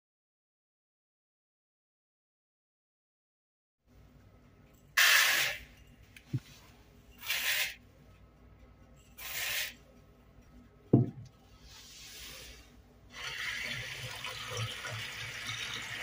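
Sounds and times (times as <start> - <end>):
thump: 11.0 - 11.2.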